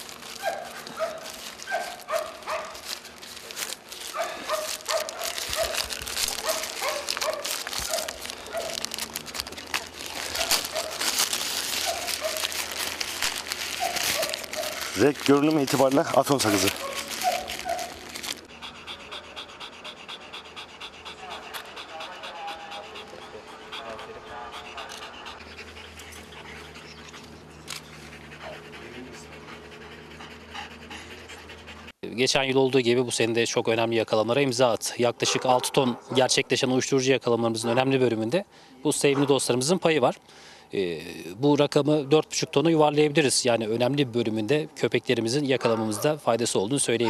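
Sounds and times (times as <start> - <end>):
plastic bag crinkling: 0.0 - 18.5
dogs panting: 0.0 - 32.0, 32.8 - 40.2, 42.5 - 47.0.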